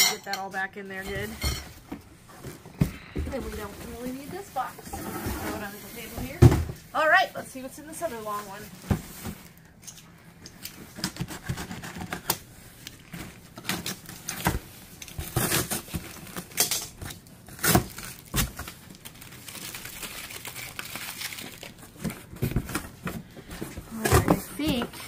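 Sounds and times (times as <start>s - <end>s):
plastic wrap crinkling: 3.0s - 4.9s, 5.5s - 9.8s, 10.6s - 25.0s
box cutter slitting packing tape: 15.1s - 18.7s
cardboard flaps bending and knocking: 22.2s - 25.0s.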